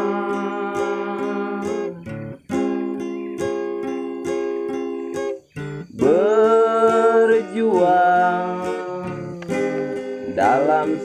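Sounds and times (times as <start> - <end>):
person singing long note: 0.0 - 2.1
strummed guitar chords: 0.0 - 11.0.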